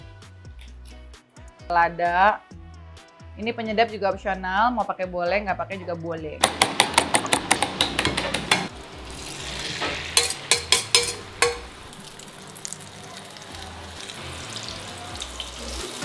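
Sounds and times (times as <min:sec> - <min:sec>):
egg sizzling in a pan: 0:08.7 - 0:16.0
fork whisking eggs in metal bowl: 0:10.2 - 0:11.7
spatula clicking against pan: 0:10.2 - 0:11.7.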